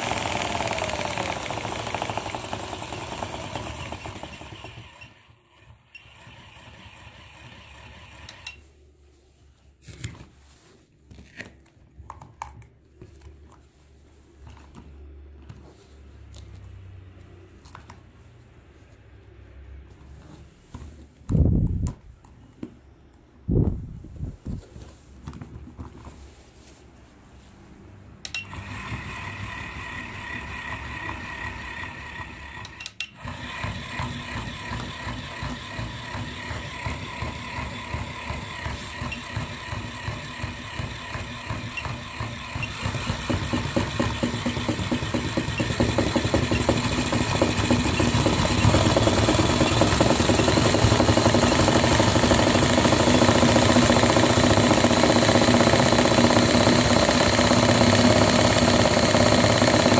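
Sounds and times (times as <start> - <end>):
toy motor and gearbox chattering: 0.0 - 5.1, 38.4 - 59.9.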